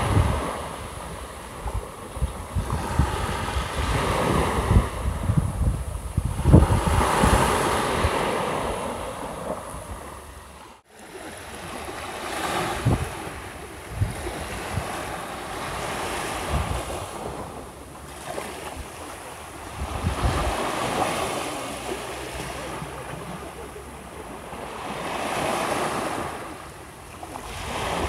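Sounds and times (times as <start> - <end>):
wind buffeting microphone: 0.0 - 10.6, 12.3 - 21.6
waves washing onto beach: 0.0 - 28.0.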